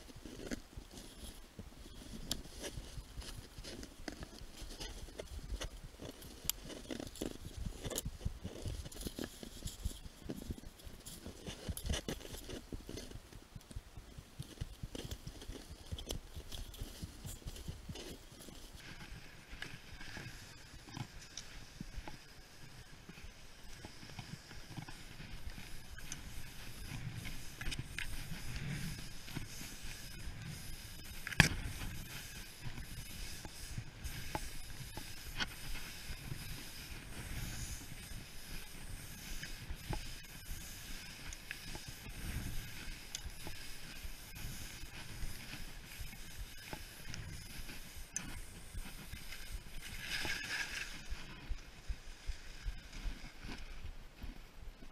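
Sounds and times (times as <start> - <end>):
skis crunching on snow: 0.0 - 54.9.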